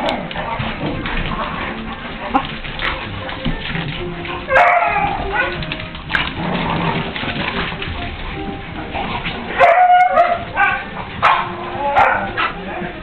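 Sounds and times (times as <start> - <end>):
small dogs barking and yipping: 4.3 - 5.9, 9.5 - 13.0.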